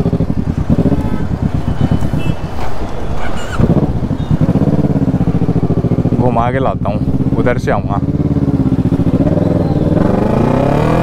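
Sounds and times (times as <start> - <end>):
motorcycle engine running: 0.0 - 2.6, 3.3 - 11.0.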